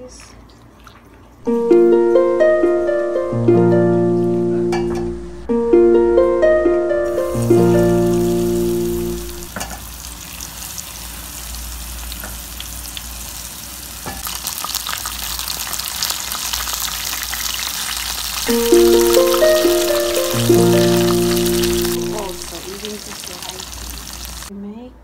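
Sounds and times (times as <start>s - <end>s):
background music: 1.5s - 9.5s, 18.5s - 22.5s
food deep-frying in hot oil: 7.2s - 24.5s.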